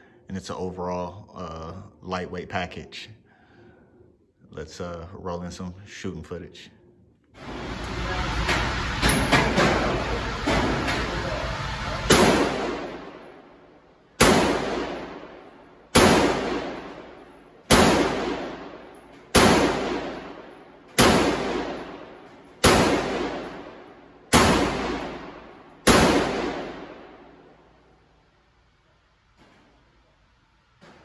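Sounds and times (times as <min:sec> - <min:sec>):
pistol shots echoing indoors: 0:11.8 - 0:28.5.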